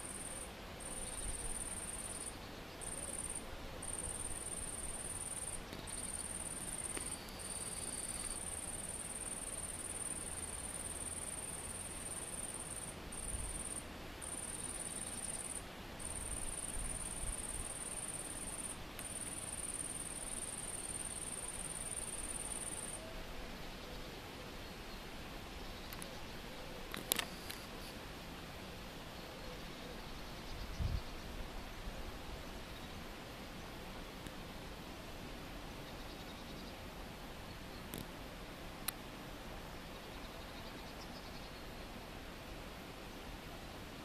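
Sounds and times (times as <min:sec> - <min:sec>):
high insect song: 0:00.0 - 0:23.1, 0:35.8 - 0:36.8, 0:39.8 - 0:41.9.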